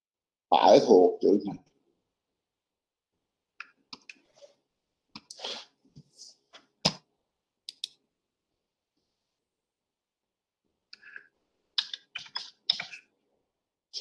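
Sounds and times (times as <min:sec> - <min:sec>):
computer mouse and keyboard clicks: 0:07.7 - 0:08.0, 0:11.8 - 0:13.1.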